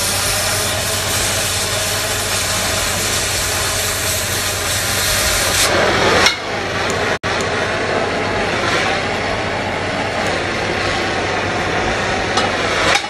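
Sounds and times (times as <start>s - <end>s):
cutting torch hissing: 0.0s - 6.9s.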